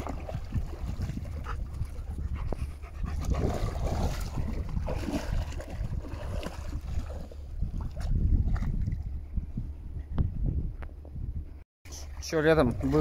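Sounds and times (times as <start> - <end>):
dog panting: 1.4 - 3.4.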